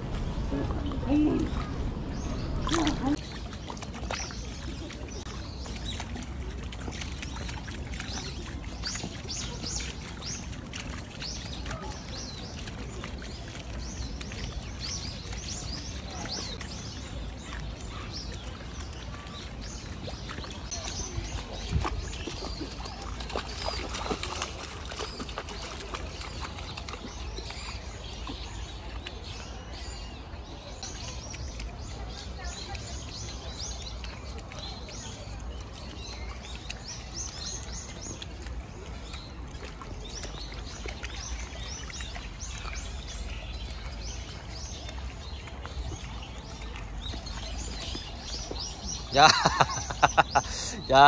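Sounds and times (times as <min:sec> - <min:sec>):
low outdoor rumble: 0:00.0 - 0:03.2
stream trickling: 0:00.0 - 0:51.0
small birds chirping: 0:00.2 - 0:51.0.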